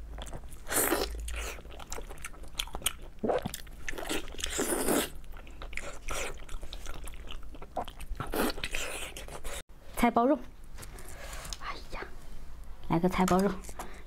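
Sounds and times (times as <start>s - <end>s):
biting and chewing meat: 0.0s - 9.6s.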